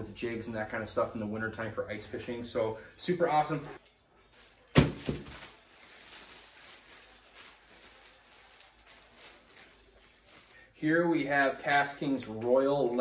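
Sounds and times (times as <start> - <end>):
plastic wrapping crinkling: 3.8 - 10.6.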